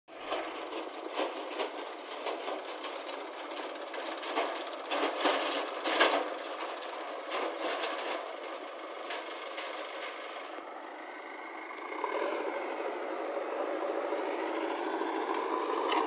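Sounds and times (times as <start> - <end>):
diesel engine running under work: 0.1 - 16.0
metal clanks and knocks: 0.2 - 8.3.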